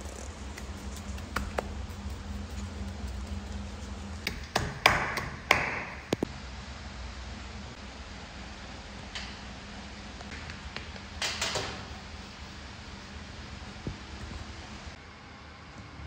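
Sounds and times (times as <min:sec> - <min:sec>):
palm rustling sweeps: 0:00.0 - 0:04.2
hand tapping on wall: 0:04.2 - 0:06.0.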